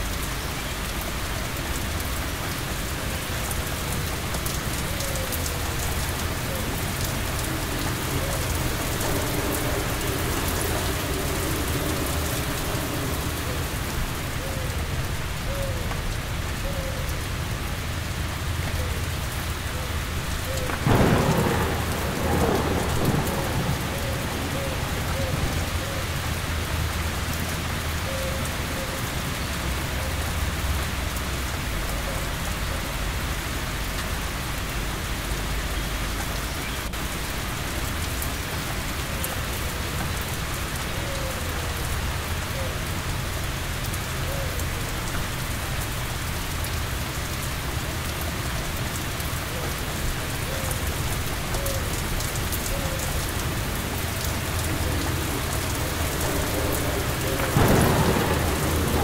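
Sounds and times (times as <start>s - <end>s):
heavy rain: 0.0s - 59.0s
thunder rumble: 1.8s - 16.6s, 19.5s - 28.0s, 49.6s - 59.0s.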